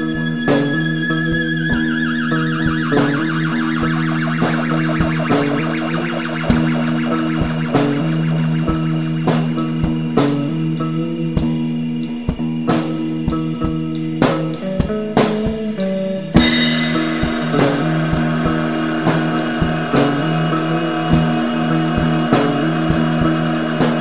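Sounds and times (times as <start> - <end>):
psychedelic rock guitar: 0.0 - 24.0
drum kit beat: 0.4 - 24.0
cymbal crash: 16.4 - 24.0.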